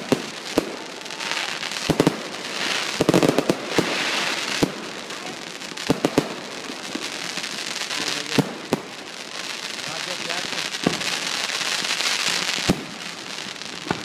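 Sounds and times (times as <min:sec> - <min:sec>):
firework launch pops and bangs: 0:00.0 - 0:07.1, 0:10.7 - 0:14.0
firework hissing crackle: 0:00.0 - 0:14.0.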